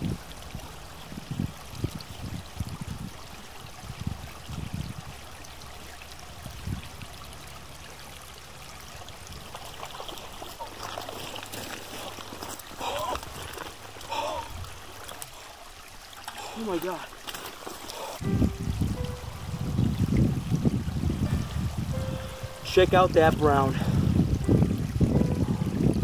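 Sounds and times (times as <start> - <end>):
stream water rushing: 0.0 - 26.0
low thumps: 18.2 - 22.8.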